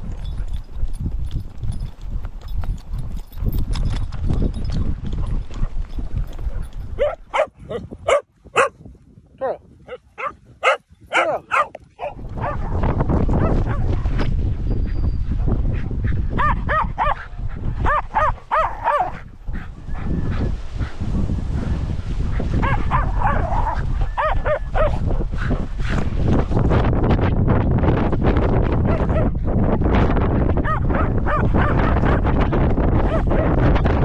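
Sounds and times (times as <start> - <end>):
wind rumble on microphone: 0.0 - 34.0
dog barking and yipping: 6.5 - 8.8, 9.4 - 12.8, 16.4 - 19.2, 22.6 - 25.0, 30.6 - 32.2, 33.0 - 33.6.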